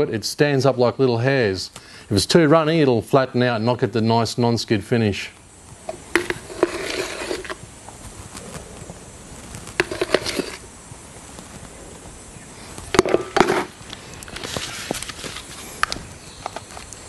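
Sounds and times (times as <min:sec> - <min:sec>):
plastic scrapes and knocks: 0:06.0 - 0:07.6, 0:09.7 - 0:10.6, 0:12.9 - 0:13.8.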